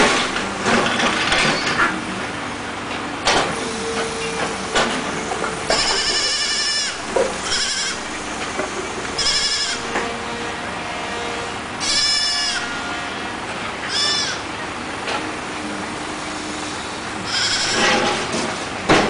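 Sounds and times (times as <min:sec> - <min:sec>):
knocks and clatter: 0:00.0 - 0:02.0, 0:17.8 - 0:19.0
kid goat bleating: 0:05.8 - 0:08.1, 0:09.2 - 0:09.9, 0:13.9 - 0:14.4, 0:17.3 - 0:17.8.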